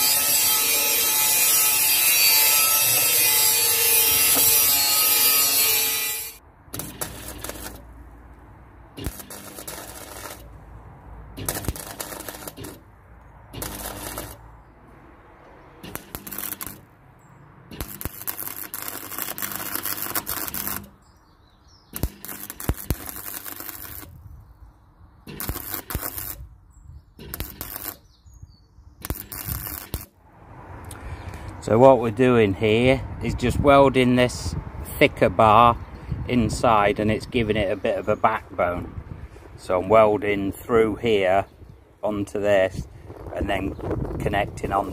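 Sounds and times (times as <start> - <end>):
angle grinder cutting steel: 0.0 - 7.8, 9.0 - 10.5, 11.4 - 12.8, 13.6 - 14.4, 15.8 - 16.9, 17.7 - 20.9
welder sizzling: 0.0 - 7.9, 9.0 - 10.5, 11.4 - 12.8, 13.6 - 14.4, 15.8 - 16.9, 17.7 - 21.0, 21.9 - 24.1, 25.3 - 26.5, 27.2 - 28.1, 29.0 - 30.1.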